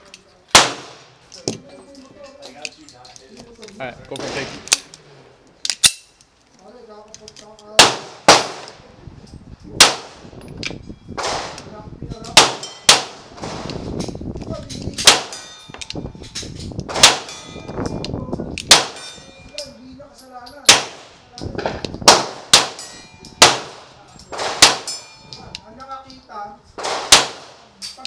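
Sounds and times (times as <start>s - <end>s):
pistol shots: 0.5s - 1.1s, 7.8s - 8.8s, 9.8s - 10.2s, 12.4s - 13.7s, 15.0s - 15.5s, 16.9s - 17.5s, 18.6s - 19.1s, 20.7s - 25.0s, 26.8s - 27.7s.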